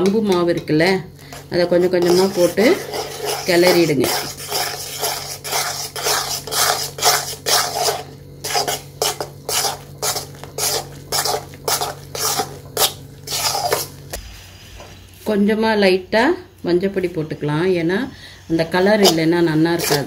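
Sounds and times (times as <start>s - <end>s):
spatula scraping a metal pan: 1.2s - 14.0s, 18.6s - 20.0s.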